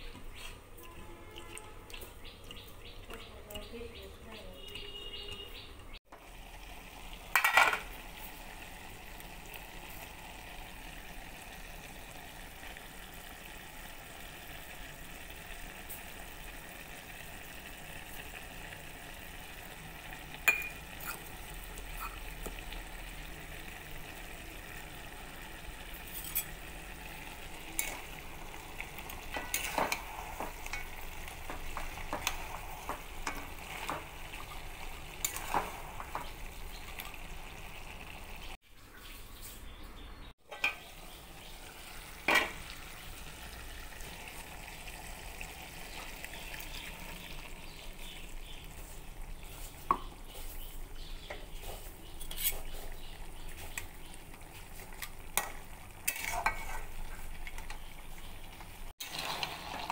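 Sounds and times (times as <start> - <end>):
food sizzling in a pot: 6.1 - 38.6, 40.4 - 59.9
metal pot lid clattering: 7.3 - 7.8, 26.1 - 26.6, 29.2 - 32.5, 55.4 - 56.9
spatula scraping a pot: 21.0 - 22.3, 26.0 - 26.6, 28.8 - 36.3, 51.5 - 53.8, 54.8 - 57.3.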